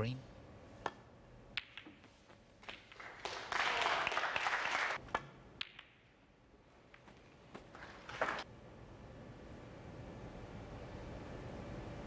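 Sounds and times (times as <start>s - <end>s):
snooker balls clicking: 0.8s - 3.0s, 5.1s - 6.1s
audience applause: 3.0s - 5.0s.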